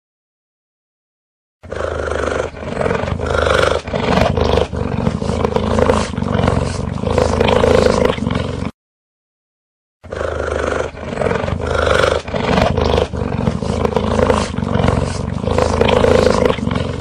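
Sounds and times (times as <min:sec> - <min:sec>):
cheetah rumbling call: 0:10.1 - 0:17.0.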